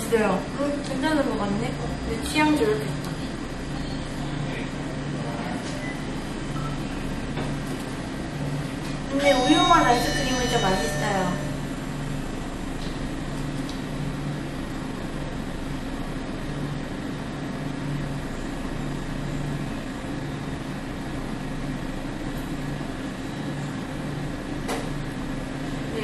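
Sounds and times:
room hum and hiss: 0:00.0 - 0:26.0.

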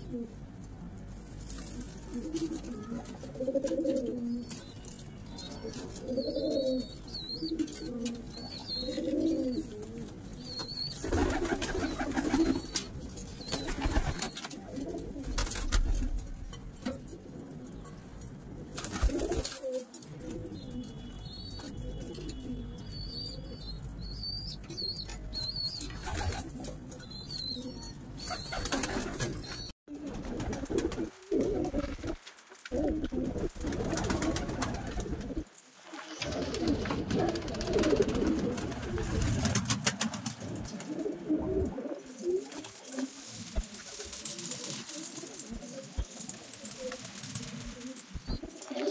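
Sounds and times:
pigeons cooing: 0:01.8 - 0:04.6, 0:05.4 - 0:15.9, 0:18.5 - 0:48.9
small birds chirping: 0:04.1 - 0:14.5, 0:20.4 - 0:29.7
rustling noise: 0:28.6 - 0:48.9.

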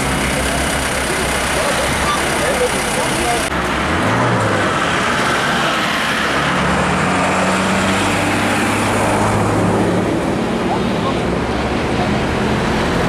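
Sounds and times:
bus engine idling: 0:00.0 - 0:03.8
road traffic: 0:00.0 - 0:13.0.

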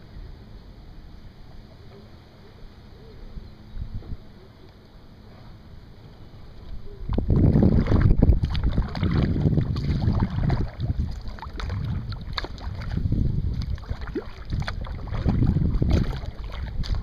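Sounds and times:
wind rumbling on microphone: 0:03.3 - 0:04.4, 0:06.1 - 0:17.0
water splashing from kayak paddle: 0:07.1 - 0:17.0.

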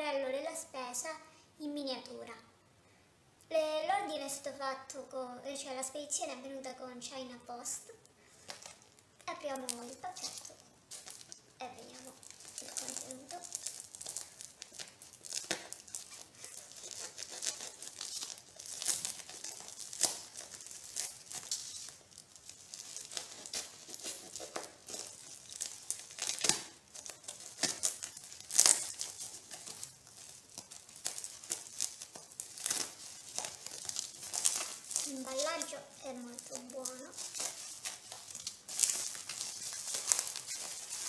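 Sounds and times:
plastic mailer bag tearing: 0:08.4 - 0:41.0.

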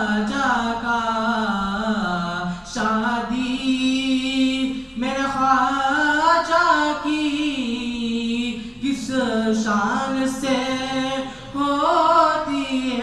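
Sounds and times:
singer breathing: 0:11.2 - 0:11.6.

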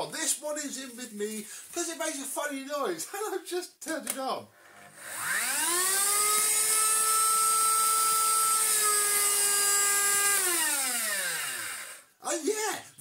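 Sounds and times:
vacuum cleaner motor whining: 0:04.7 - 0:12.0.

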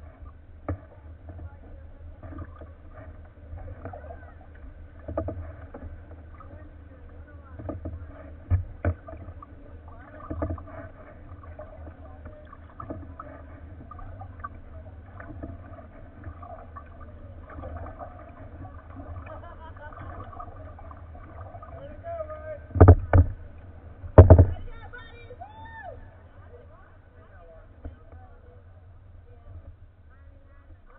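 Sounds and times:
paddle strokes splashing water: 0:00.0 - 0:30.9
water rumbling against hull: 0:00.0 - 0:30.9
sharp knocks: 0:22.7 - 0:23.4, 0:24.2 - 0:24.6.

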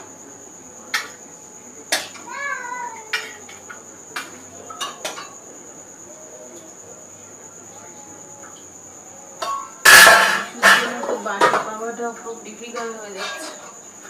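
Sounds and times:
dishes and utensils clinking: 0:00.9 - 0:01.2, 0:03.1 - 0:05.4, 0:09.4 - 0:11.8, 0:12.7 - 0:13.8.

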